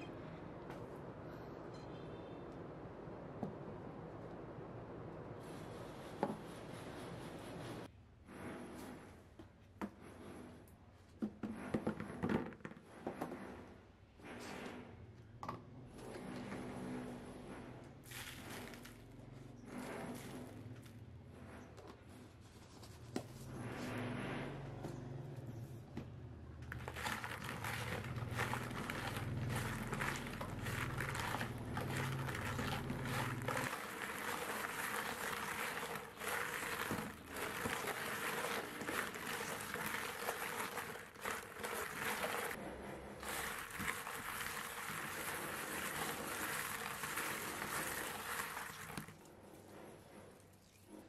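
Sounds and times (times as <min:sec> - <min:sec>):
limes scraping with salt in bowl: 0:26.7 - 0:42.6, 0:43.2 - 0:49.2.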